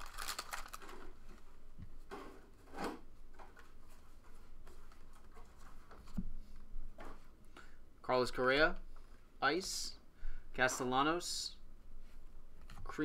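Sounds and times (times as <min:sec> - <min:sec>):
foil wrapper crinkling: 0:00.0 - 0:01.1.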